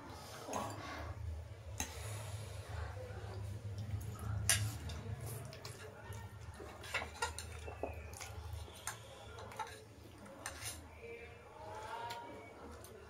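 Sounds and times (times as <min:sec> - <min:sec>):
forks clinking on plates: 0:04.4 - 0:09.8.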